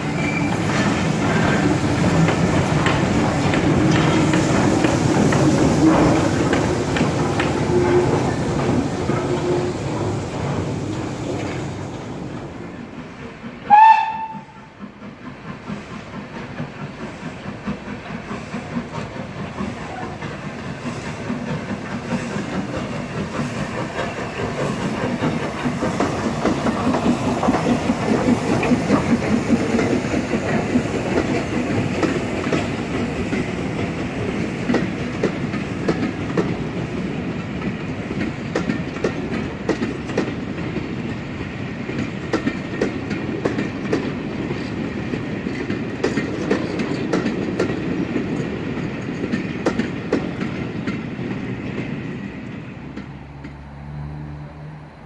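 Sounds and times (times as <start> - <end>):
coaches clicking over rail joints: 0.0 - 55.0
steam locomotive whistle: 7.7 - 8.4, 13.6 - 14.8
locomotive exhaust beats: 13.3 - 36.5.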